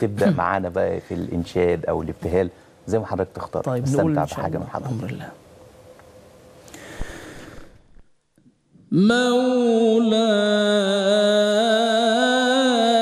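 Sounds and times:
man singing devotional chant: 8.9s - 13.0s.

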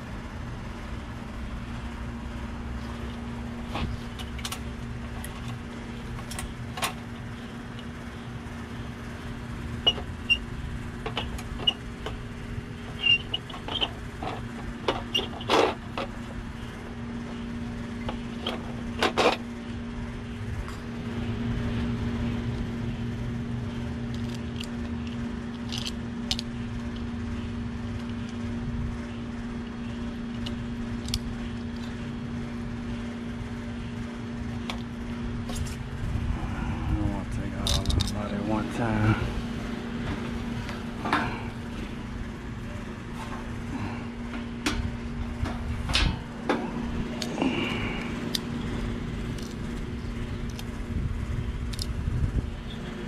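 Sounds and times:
machine hum: 0.0s - 53.0s
parts clicking and knocking: 3.0s - 8.0s, 9.8s - 12.2s, 12.8s - 16.4s, 18.0s - 19.5s, 24.0s - 27.1s, 30.3s - 32.0s, 37.6s - 38.3s, 44.3s - 50.8s, 51.6s - 52.0s.

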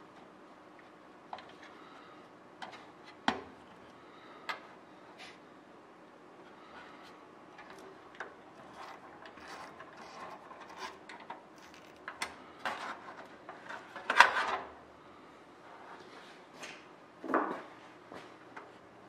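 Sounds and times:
small metal clicks and scrapes: 7.6s - 14.5s.

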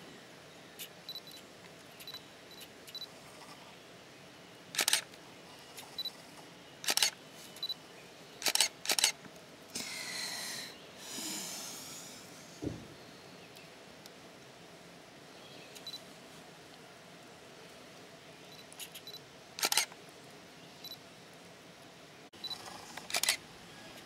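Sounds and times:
camera shutter clicks: 4.8s - 5.1s, 6.8s - 7.2s, 8.4s - 9.2s, 18.8s - 19.9s, 23.1s - 23.4s.

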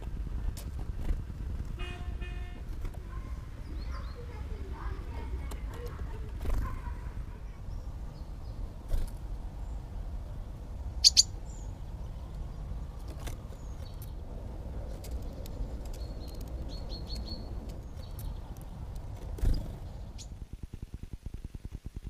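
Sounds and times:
songbirds chirping: 0.0s - 20.4s
low steady rumble: 0.0s - 22.0s.

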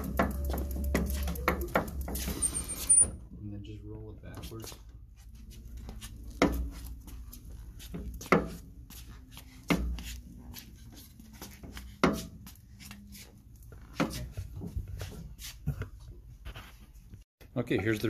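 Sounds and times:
tricycle chain drive turning: 0.0s - 3.1s.

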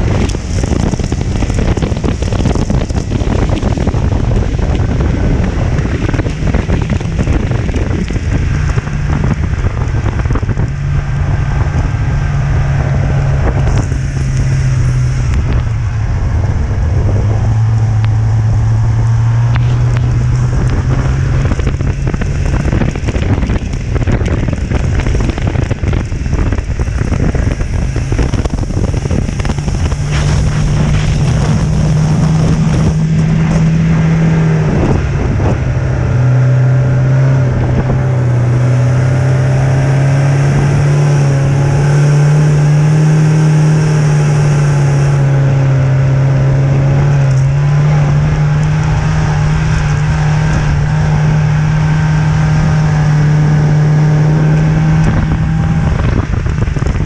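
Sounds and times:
snowmobile engine running: 0.0s - 57.0s
wind rush on microphone: 0.0s - 57.0s.

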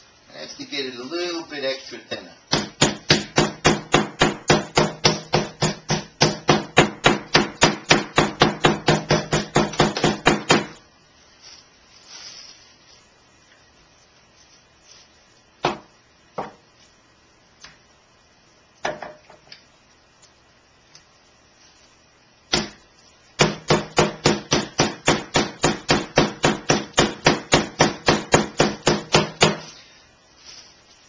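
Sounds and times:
meat mallet pounding chicken: 2.5s - 10.8s, 23.4s - 29.6s.

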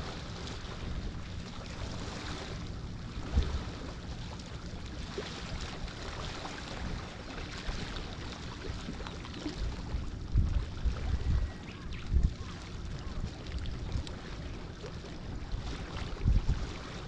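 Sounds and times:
wind buffeting microphone: 8.6s - 14.5s, 15.2s - 17.0s.

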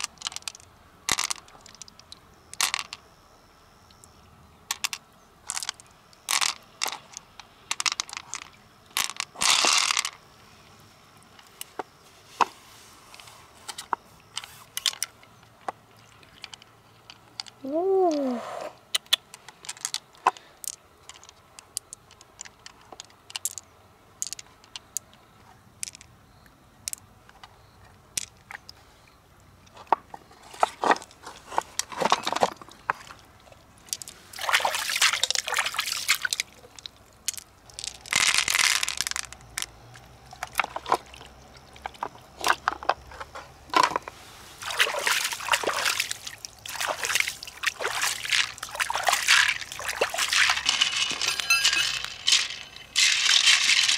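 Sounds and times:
water sloshing and splashing: 29.8s - 39.3s, 40.0s - 53.9s.

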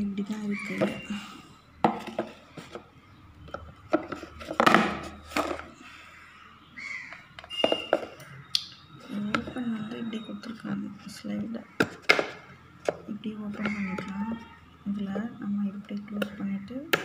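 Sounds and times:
plastic containers clacking on stone: 1.8s - 2.8s, 3.4s - 5.7s, 7.1s - 8.3s, 9.1s - 10.1s, 11.8s - 14.4s.

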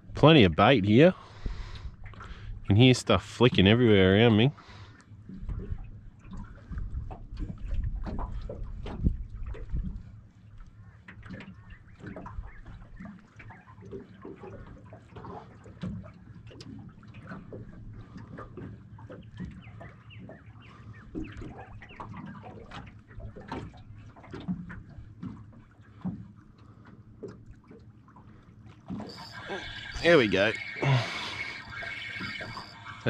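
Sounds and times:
low water wash: 0.0s - 33.0s
fish splashing at water surface: 28.9s - 33.0s.

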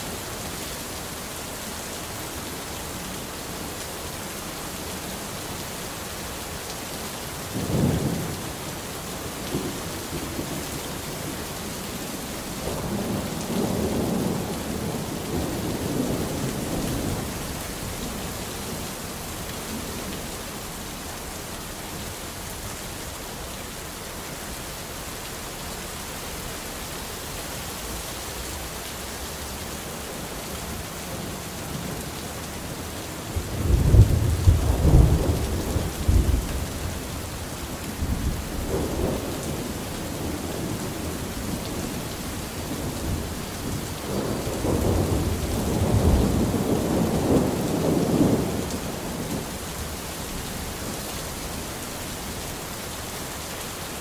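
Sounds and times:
steady rain hissing: 0.0s - 54.0s
thunder rumbling: 33.4s - 37.2s, 42.7s - 49.4s.

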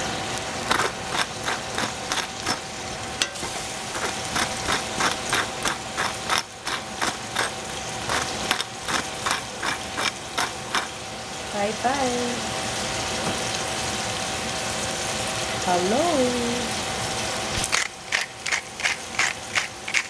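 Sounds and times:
pepper mill grinding: 0.6s - 11.0s, 17.6s - 20.0s.

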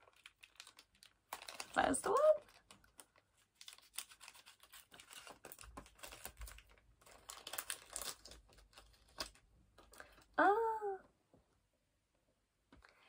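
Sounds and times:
plastic packet crinkling: 0.0s - 10.4s.

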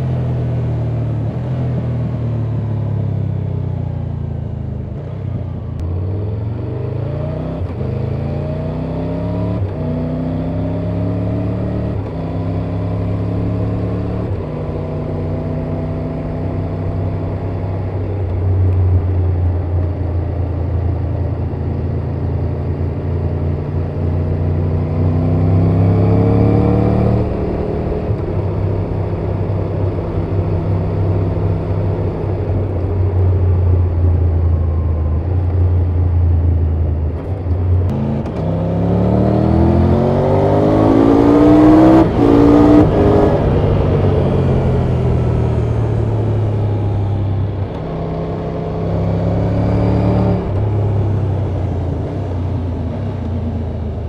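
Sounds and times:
motorcycle engine revving: 20.0s - 36.0s, 36.6s - 54.0s.

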